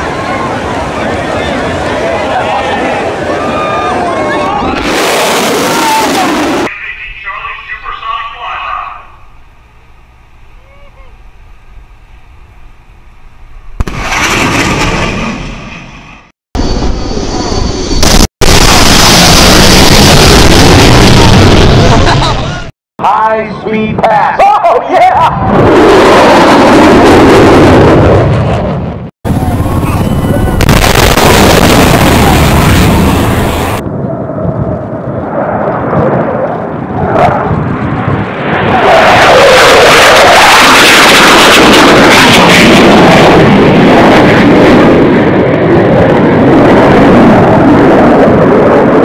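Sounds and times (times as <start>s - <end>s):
jet roar: 0.0s - 10.0s, 13.6s - 22.7s, 23.3s - 49.0s
sonic boom crack: 13.8s - 16.0s, 18.0s - 22.3s, 30.6s - 33.8s
loud rushing noise: 37.2s - 49.0s.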